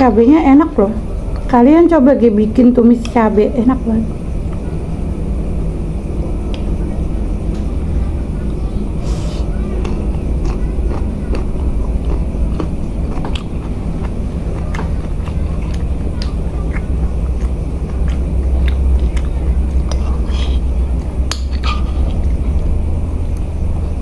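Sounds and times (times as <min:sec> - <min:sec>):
low rumble: 0:00.0 - 0:24.0
person chewing food: 0:09.2 - 0:23.5.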